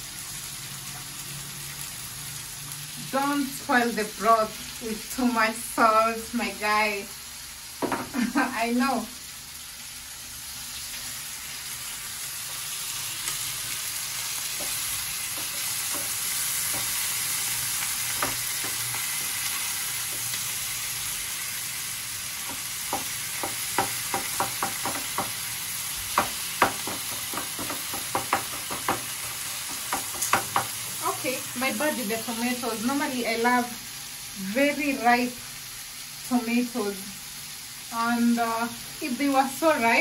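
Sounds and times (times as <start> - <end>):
onions and tomatoes sizzling: 0.0 - 40.0
wooden spatula tapping pan: 18.2 - 18.8, 22.4 - 25.4, 26.1 - 30.8.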